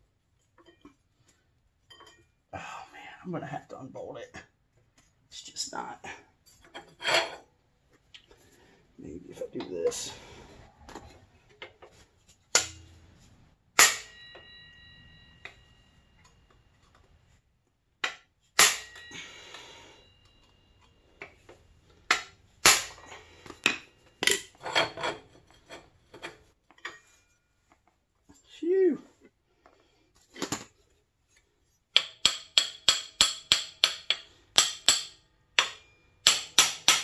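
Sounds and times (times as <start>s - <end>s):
hammer striking metal: 12.5s - 13.0s, 13.7s - 16.3s, 18.0s - 20.5s, 22.1s - 24.5s, 31.9s - 37.0s.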